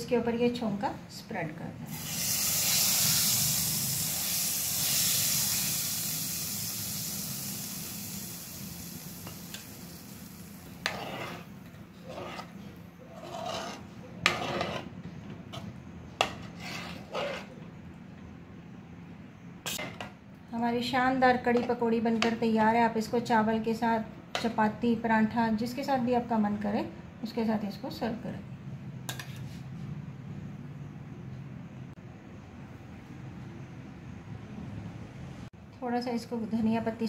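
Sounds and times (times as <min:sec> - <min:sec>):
hot ghee sizzling: 0:01.9 - 0:11.6
spoon stirring in metal pan: 0:10.7 - 0:14.9, 0:15.5 - 0:17.6.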